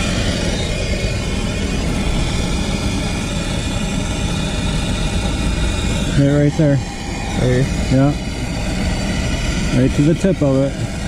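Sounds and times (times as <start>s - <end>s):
gas torch hissing: 0.0s - 11.0s.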